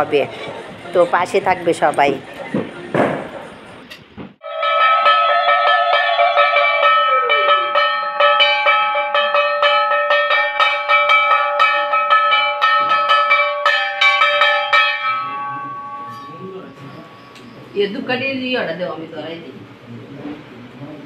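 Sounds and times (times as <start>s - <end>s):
hand bell ringing rapidly: 4.5s - 17.4s.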